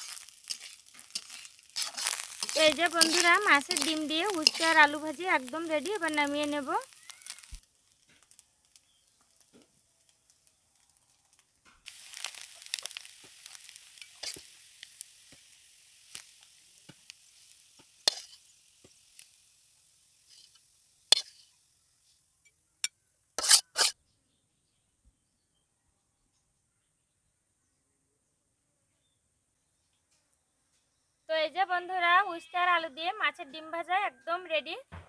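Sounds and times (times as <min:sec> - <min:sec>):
spatula scraping pan: 0:00.0 - 0:08.4, 0:11.9 - 0:14.6, 0:16.9 - 0:19.0, 0:20.2 - 0:21.6, 0:23.4 - 0:24.0
food sizzling in iron pan: 0:00.0 - 0:22.3, 0:23.4 - 0:24.0.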